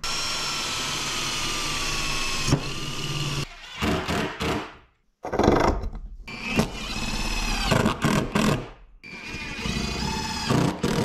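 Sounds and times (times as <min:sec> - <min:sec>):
cordless drill driving screws: 0:00.0 - 0:04.4.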